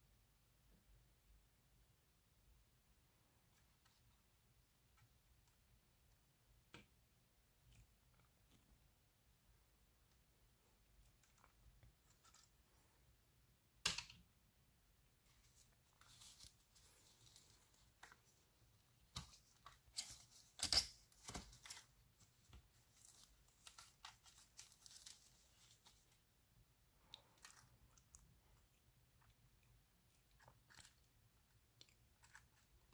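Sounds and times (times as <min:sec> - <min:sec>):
plastic film crinkling: 0:22.7 - 0:26.2.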